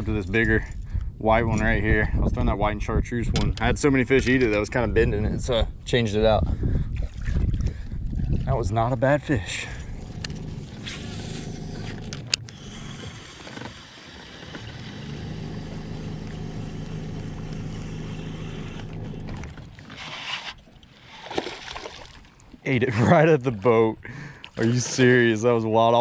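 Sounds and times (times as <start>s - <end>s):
fishing reel whirring: 9.8s - 21.4s
fish splashing: 17.7s - 22.6s.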